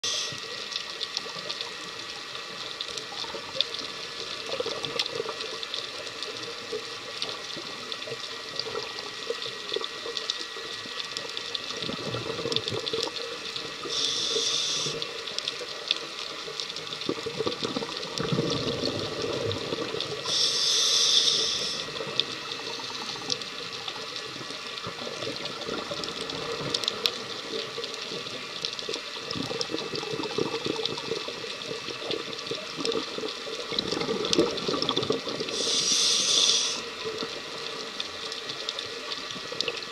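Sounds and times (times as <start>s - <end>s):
underwater crackling hiss: 0.0s - 39.9s
scuba regulator breathing: 13.8s - 15.1s, 20.2s - 23.4s, 35.5s - 36.9s.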